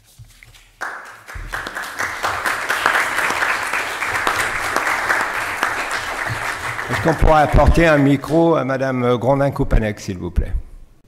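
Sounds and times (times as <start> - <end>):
audience applause: 0.8 - 8.4.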